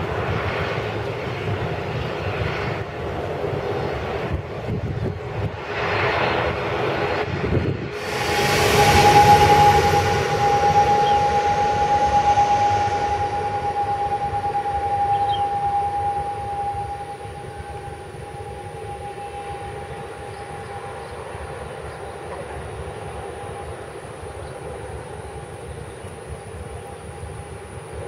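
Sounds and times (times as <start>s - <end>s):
turboprop engines droning: 0.0s - 28.0s.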